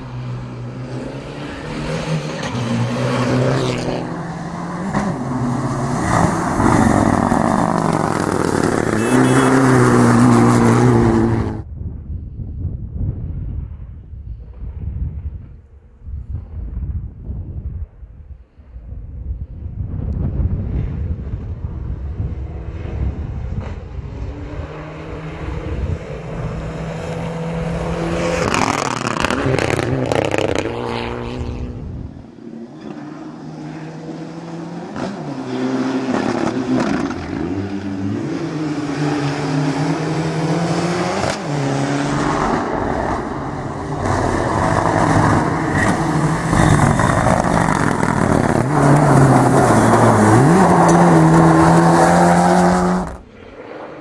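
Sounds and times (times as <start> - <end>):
rally car engine revving: 0.3 - 11.6, 22.3 - 31.9, 32.7 - 54.0
gravel crunching under tyres: 43.9 - 53.8.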